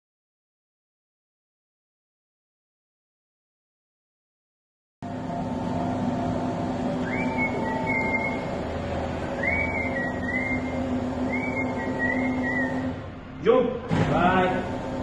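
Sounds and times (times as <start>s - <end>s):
electric motor humming: 5.0s - 13.1s, 14.3s - 15.0s
lift squealing: 6.7s - 13.0s.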